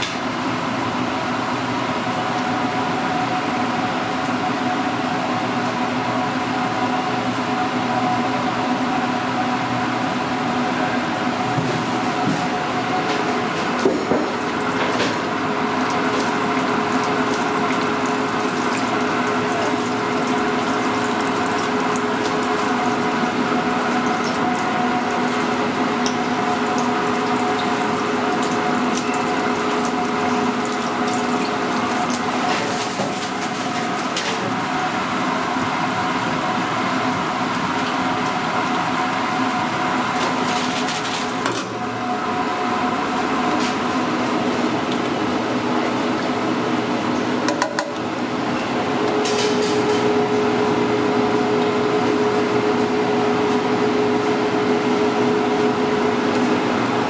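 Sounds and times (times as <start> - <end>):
steady machine hum: 0.0 - 57.0
hot oil bubbling and sizzling: 13.7 - 48.5.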